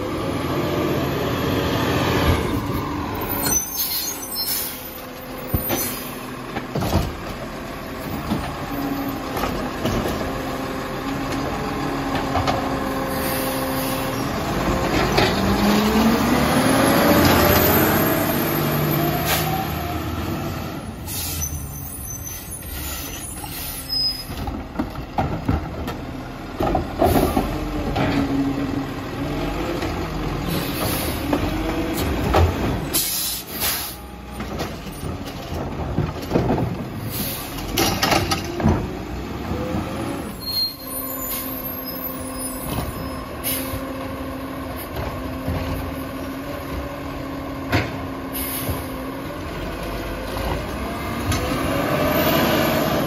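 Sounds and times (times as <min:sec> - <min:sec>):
garbage truck diesel engine: 0:00.0 - 0:53.0
air brake hisses: 0:21.1 - 0:21.8, 0:22.4 - 0:24.1, 0:32.9 - 0:34.1.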